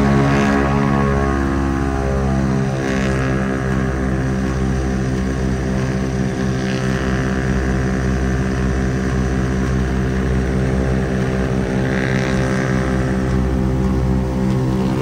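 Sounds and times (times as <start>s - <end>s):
airplane engines droning: 0.0s - 15.0s.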